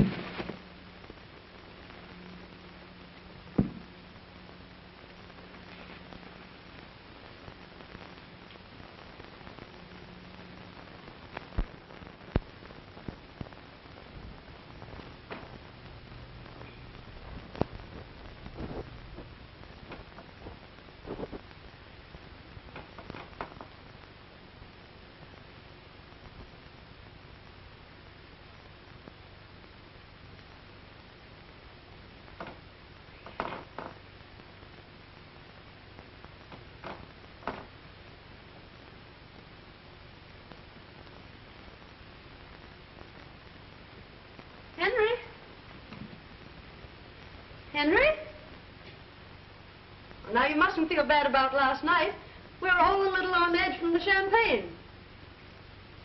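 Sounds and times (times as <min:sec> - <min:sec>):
old film soundtrack hiss: 0:00.0 - 0:56.0
soft knocks: 0:03.6 - 0:03.9.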